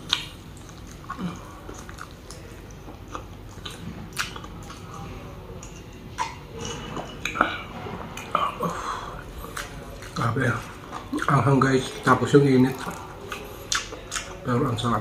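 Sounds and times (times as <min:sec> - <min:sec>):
chewing and mouth smacks: 0:00.0 - 0:06.4, 0:09.4 - 0:12.0, 0:12.6 - 0:14.4.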